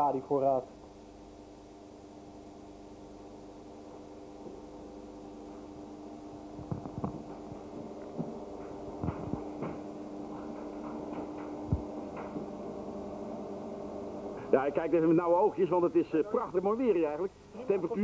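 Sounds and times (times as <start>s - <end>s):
electrical hum: 0.0s - 18.0s.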